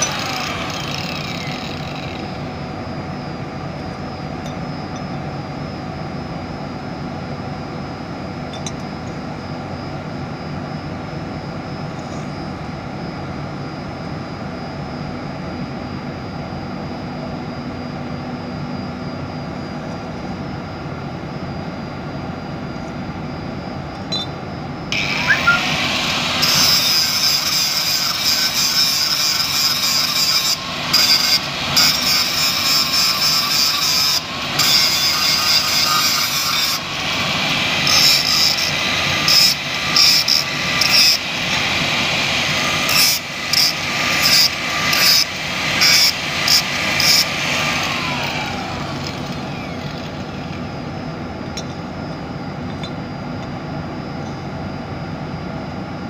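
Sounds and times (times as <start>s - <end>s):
angle grinder cutting metal: 0.0s - 2.5s, 24.9s - 50.6s.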